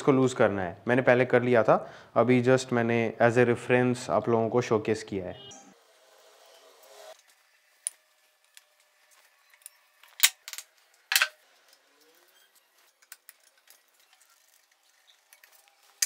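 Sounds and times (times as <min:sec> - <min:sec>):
metal tools clinking: 0:09.6 - 0:16.0.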